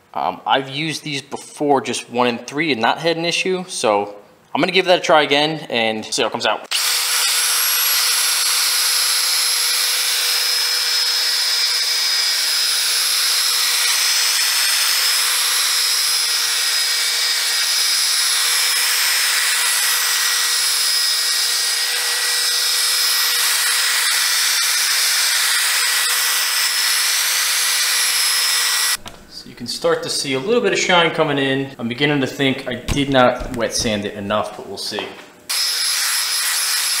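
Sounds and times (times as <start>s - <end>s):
drill motor whine: 6.7s - 29.0s, 35.5s - 37.0s.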